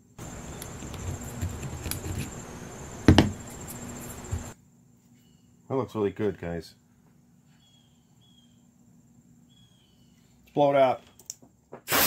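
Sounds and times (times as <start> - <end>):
rag rubbing metal part: 0.4 - 4.5
loud knock: 3.1 - 3.4.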